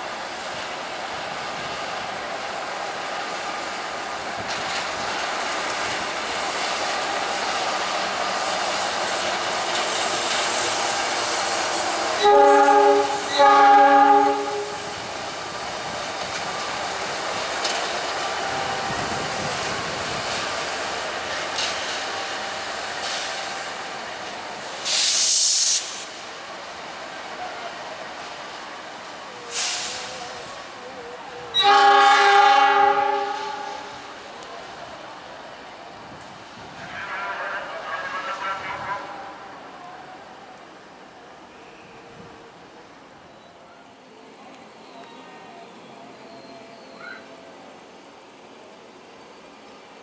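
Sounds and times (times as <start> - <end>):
locomotive engine and wheel rumble: 0.0 - 50.0
sharp hiss: 2.9 - 12.3, 14.6 - 27.0, 28.2 - 30.8
locomotive horn blasts: 12.2 - 14.9, 31.5 - 33.9.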